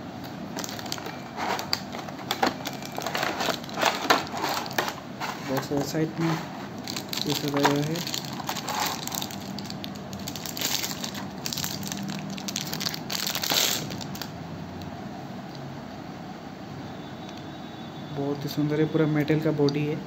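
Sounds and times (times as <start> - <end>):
plastic wrap crinkling: 0.2 - 14.3.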